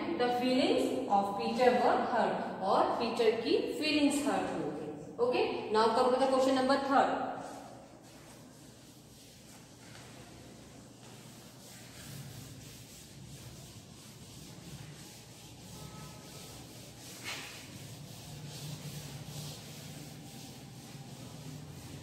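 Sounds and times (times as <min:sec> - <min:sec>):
duster wiping chalkboard: 0:07.4 - 0:22.0.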